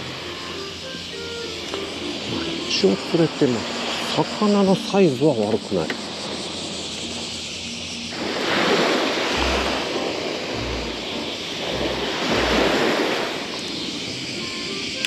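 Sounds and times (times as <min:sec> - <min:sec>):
waves washing up a beach: 0:01.9 - 0:06.8, 0:08.1 - 0:15.0
low thumps of wind buffeting: 0:05.9 - 0:14.3
wind on microphone: 0:08.2 - 0:14.4.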